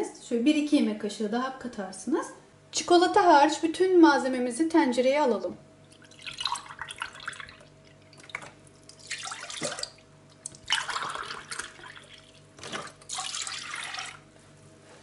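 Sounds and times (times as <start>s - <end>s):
milk pouring into a metal pot: 5.9s - 10.0s, 10.7s - 14.2s
milk pouring into a glass: 5.9s - 14.2s.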